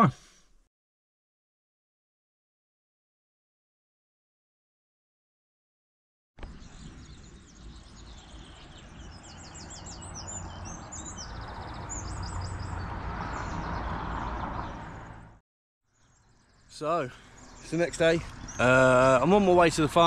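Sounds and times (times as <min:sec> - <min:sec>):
birds chirping: 0:06.4 - 0:20.0.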